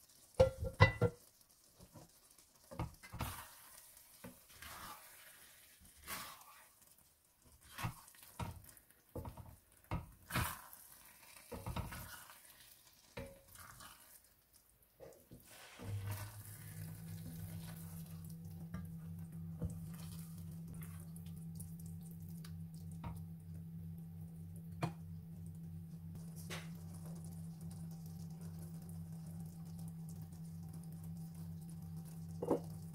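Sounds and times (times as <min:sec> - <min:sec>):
wooden spoon stirring in a pan: 0:00.0 - 0:21.3
rice simmering: 0:00.0 - 0:32.9.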